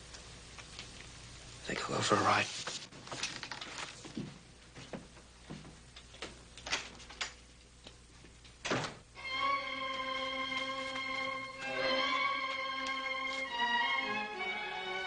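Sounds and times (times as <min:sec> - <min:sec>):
footsteps walking across a room: 0:02.5 - 0:08.5, 0:09.7 - 0:14.3
door shutting: 0:08.6 - 0:09.0
sad string music: 0:09.2 - 0:15.0.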